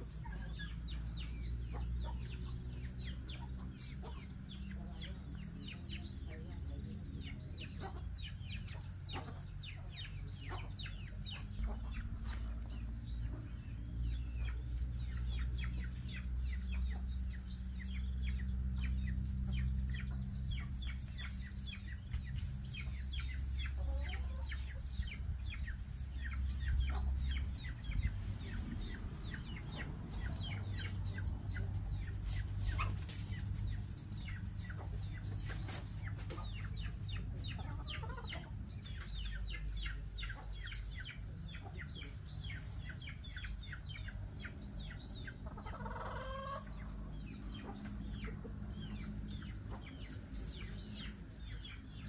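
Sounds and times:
chickens clucking: 0.0s - 52.0s
steady low rumble: 0.0s - 52.0s.

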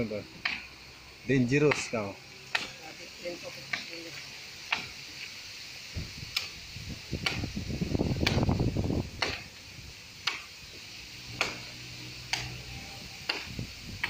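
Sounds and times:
wind rumbling on microphone: 5.9s - 10.0s, 13.1s - 14.0s.

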